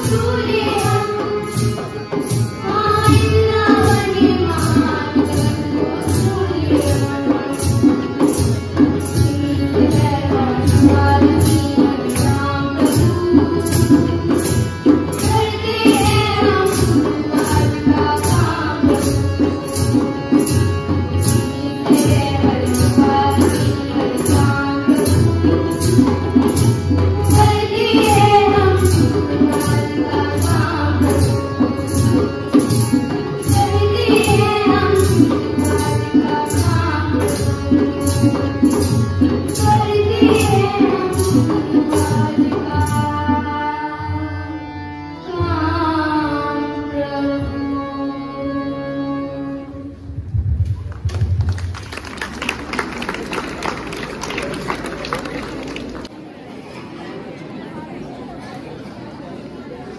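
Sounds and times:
jingling percussion: 0:00.0 - 0:43.3
tabla drum beat: 0:00.0 - 0:43.6, 0:50.4 - 0:55.7.

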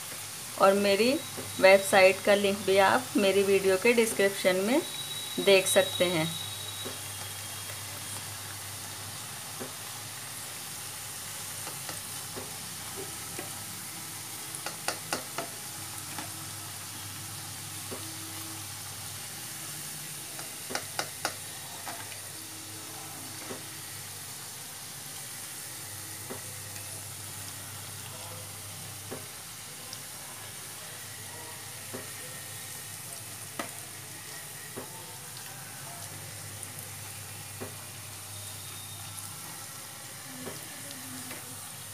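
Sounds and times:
fritters sizzling in hot oil: 0:00.0 - 0:41.9
spoon knocking against pan: 0:14.6 - 0:15.5, 0:20.4 - 0:21.4.

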